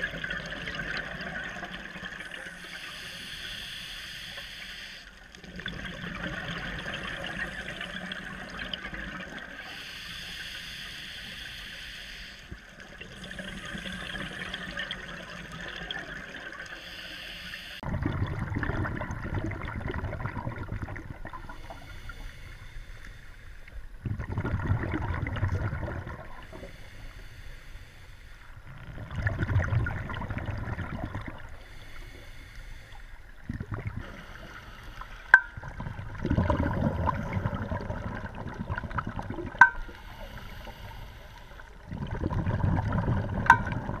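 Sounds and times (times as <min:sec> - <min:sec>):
scuba exhalation bubbles gurgling: 0:00.0 - 0:02.8, 0:05.4 - 0:09.8, 0:12.8 - 0:16.8, 0:17.8 - 0:21.9, 0:24.0 - 0:26.7, 0:28.6 - 0:31.9, 0:33.3 - 0:41.0, 0:41.6 - 0:44.0.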